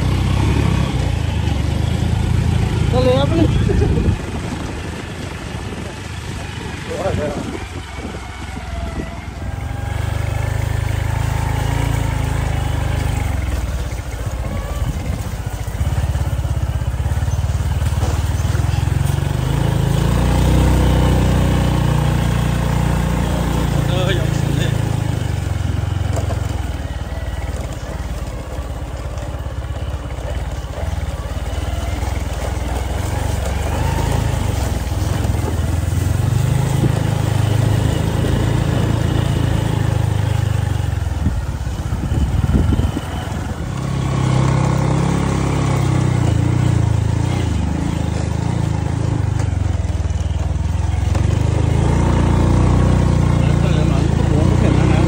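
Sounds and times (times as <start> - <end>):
motorcycle engine running: 0.0 - 55.0
wind buffeting microphone: 2.2 - 11.0, 32.0 - 45.3.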